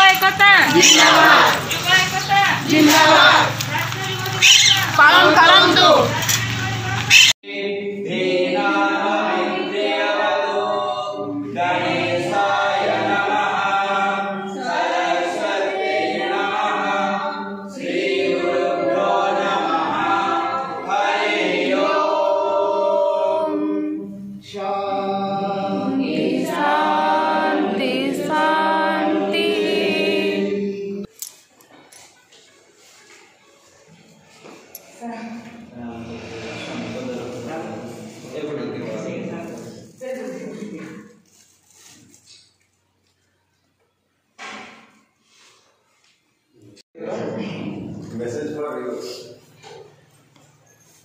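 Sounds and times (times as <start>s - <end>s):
group singing a prayer: 0.0s - 31.2s, 34.4s - 42.5s.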